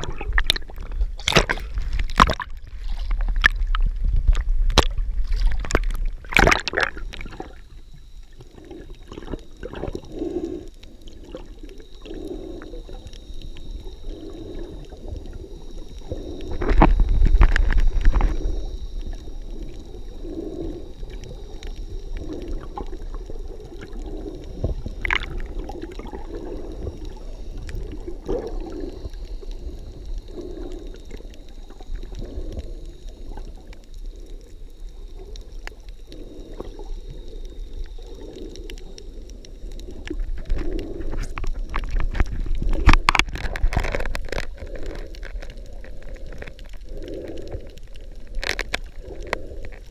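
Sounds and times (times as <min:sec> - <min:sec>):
faint high whine: 0:05.0 - 0:41.4.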